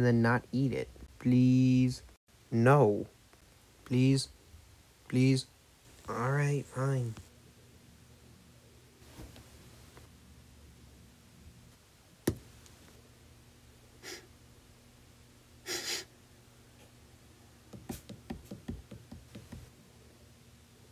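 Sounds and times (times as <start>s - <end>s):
faint low hum: 0.0s - 20.9s
sniffing: 14.0s - 14.3s, 15.6s - 16.1s
light padding taps: 17.7s - 19.7s.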